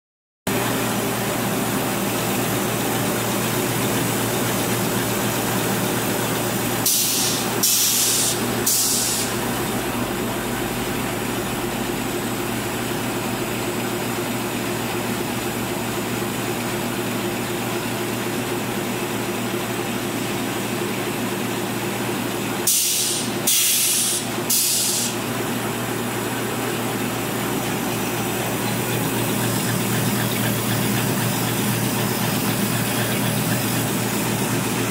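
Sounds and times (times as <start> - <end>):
folding machine humming: 0.5 - 34.9
compressed air hisses: 6.9 - 9.4, 22.7 - 25.2.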